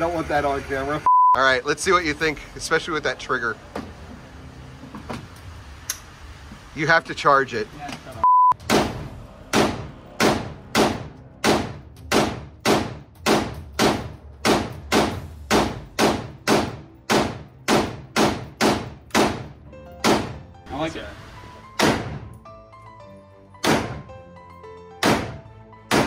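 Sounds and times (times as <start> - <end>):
rifle shots echoing indoors: 8.6 - 19.4.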